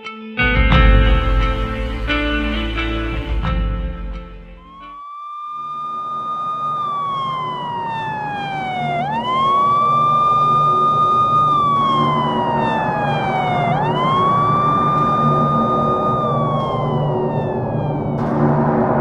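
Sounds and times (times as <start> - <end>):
emergency siren wailing: 4.4 - 19.0
steady noisy rumble: 13.7 - 19.0.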